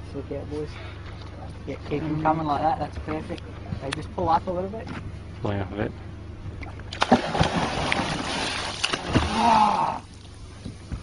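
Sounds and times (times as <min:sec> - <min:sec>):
fish thrashing water splashing: 0:06.9 - 0:10.0.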